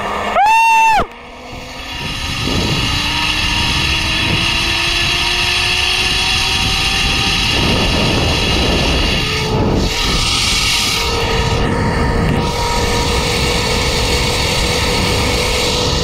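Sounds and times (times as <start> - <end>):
wind rush on microphone: 0.0 - 16.0
zipline pulleys whining: 0.0 - 16.0.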